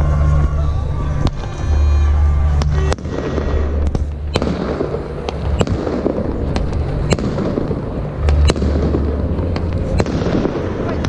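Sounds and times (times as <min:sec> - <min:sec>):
low rumble: 0:00.0 - 0:11.0
fireworks bangs: 0:01.2 - 0:11.0
fireworks crackle: 0:02.7 - 0:11.0.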